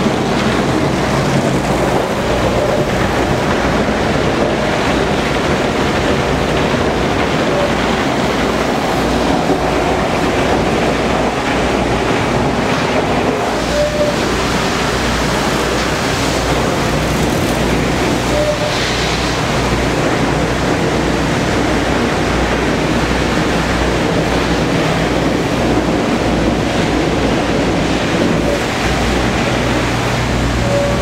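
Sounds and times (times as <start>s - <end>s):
water spray rushing against bus: 0.0s - 31.0s.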